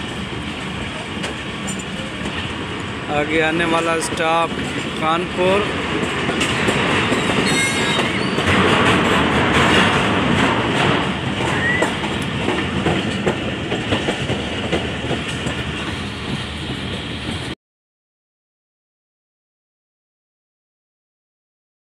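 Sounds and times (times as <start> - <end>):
train rumble: 0.0 - 17.6
wheels clicking over rail joints: 3.7 - 17.4
high squeal: 7.4 - 8.4, 11.5 - 12.0.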